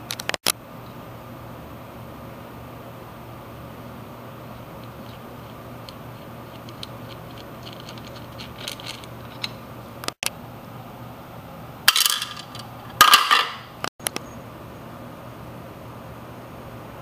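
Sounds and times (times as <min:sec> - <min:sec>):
metal parts clattering into tray: 0:11.9 - 0:13.7.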